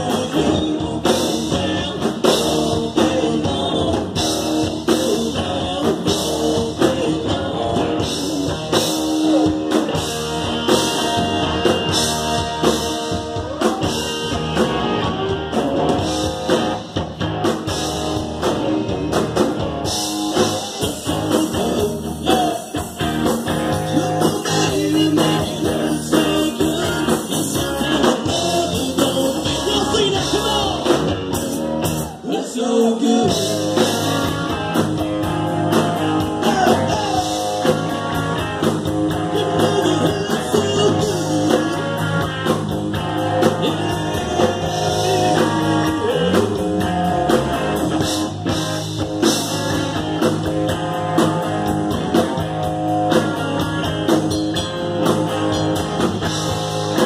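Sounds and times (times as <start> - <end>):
country-rock band playing: 0.0 - 57.0.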